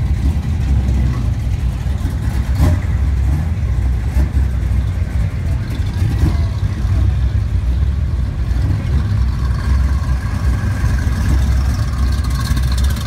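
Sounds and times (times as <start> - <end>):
car engines running: 0.0 - 13.0.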